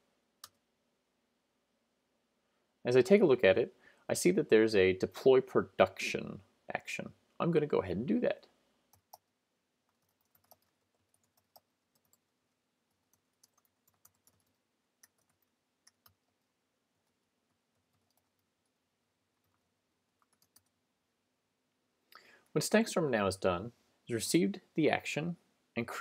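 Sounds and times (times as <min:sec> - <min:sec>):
computer keyboard typing: 0:09.9 - 0:12.3, 0:12.9 - 0:18.8, 0:19.4 - 0:20.8.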